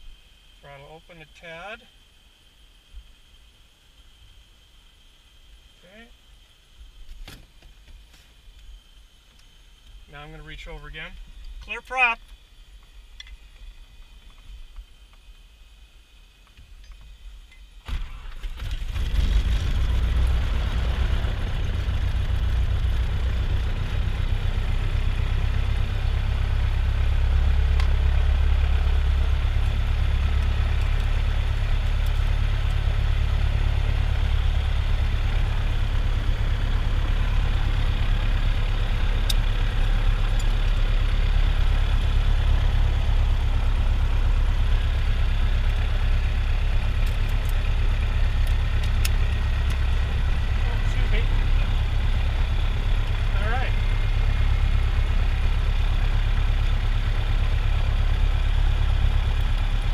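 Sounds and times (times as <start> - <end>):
aircraft piston engine running: 0.0 - 59.9
aircraft engine starter cranking: 17.8 - 19.1.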